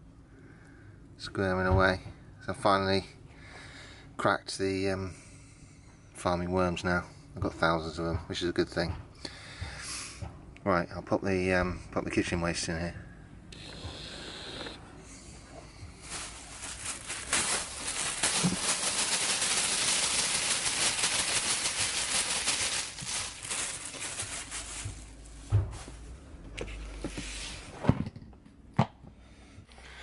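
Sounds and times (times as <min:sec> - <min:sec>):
food scraps rustling and crackling: 0:15.6 - 0:26.0.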